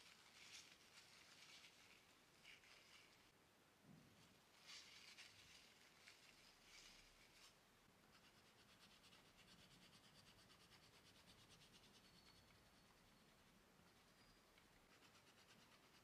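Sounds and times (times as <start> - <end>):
oil pastel scratching on paper: 4.7 - 16.0.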